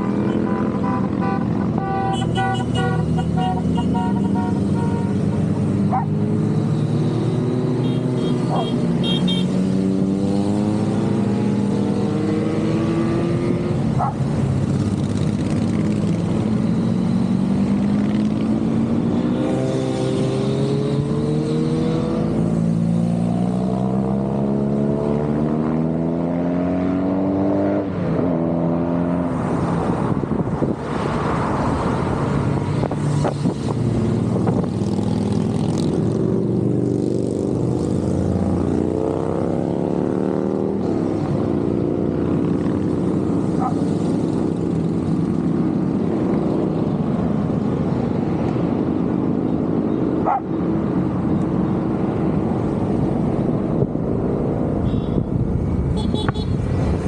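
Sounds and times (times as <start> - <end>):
motorcycles accelerating past: 3.0 - 29.7, 30.6 - 49.0.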